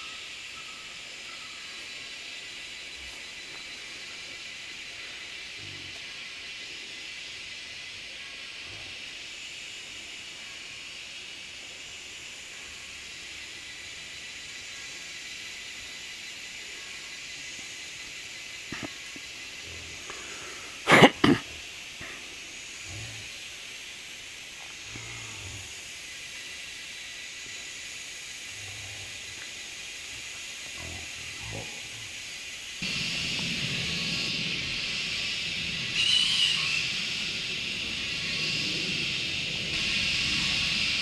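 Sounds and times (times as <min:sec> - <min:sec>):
high-pitched hiss: 0:00.0 - 0:41.0.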